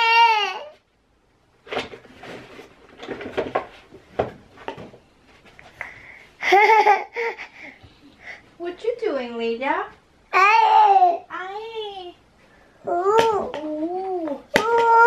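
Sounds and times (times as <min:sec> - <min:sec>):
objects knocking on shelves: 0:01.7 - 0:05.0
toddler voice: 0:10.3 - 0:12.2, 0:12.8 - 0:15.0.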